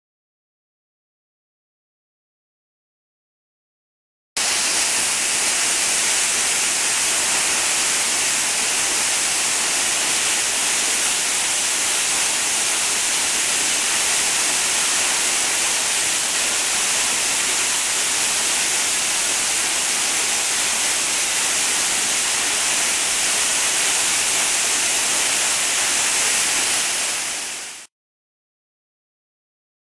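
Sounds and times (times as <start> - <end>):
waterfall rushing: 4.4 - 27.9.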